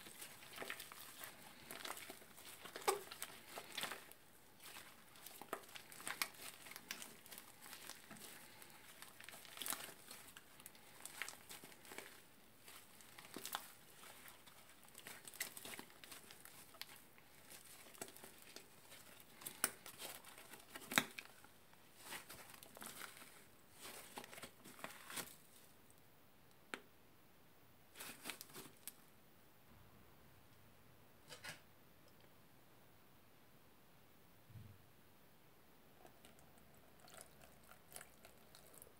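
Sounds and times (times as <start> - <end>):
hands squeezing slime: 0.0 - 25.5.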